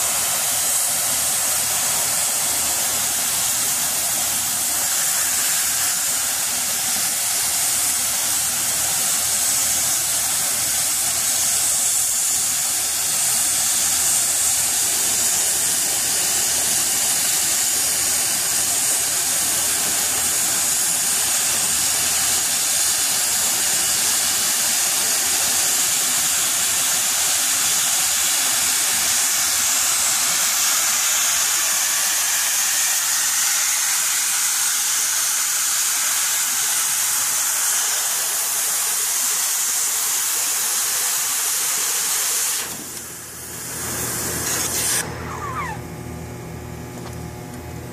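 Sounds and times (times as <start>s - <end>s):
cutting torch hissing: 0.0s - 45.9s
low machine hum: 45.0s - 47.9s.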